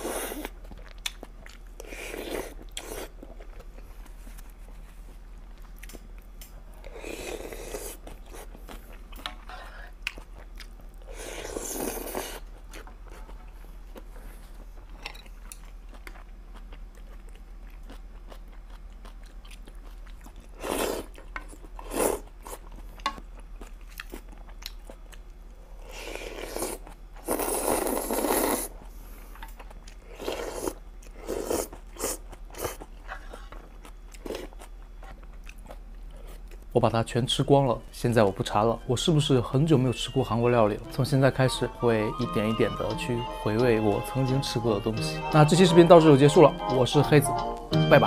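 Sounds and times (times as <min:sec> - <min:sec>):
person chewing: 0:00.0 - 0:04.8, 0:05.4 - 0:36.7
person slurping noodles: 0:01.8 - 0:03.1, 0:06.9 - 0:08.0, 0:11.1 - 0:12.4, 0:20.6 - 0:21.1, 0:25.8 - 0:28.7, 0:30.1 - 0:32.8.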